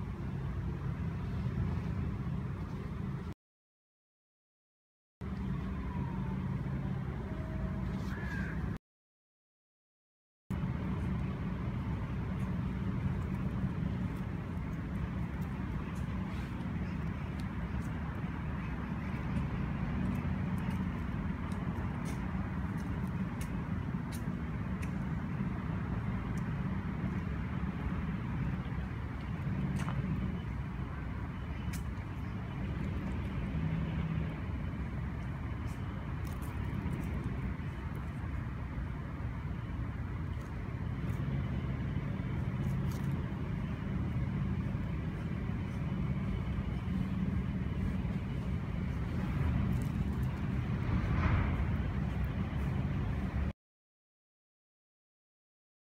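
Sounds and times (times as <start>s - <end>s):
traffic rumble: 0.0s - 3.4s, 5.2s - 8.8s, 10.5s - 53.5s.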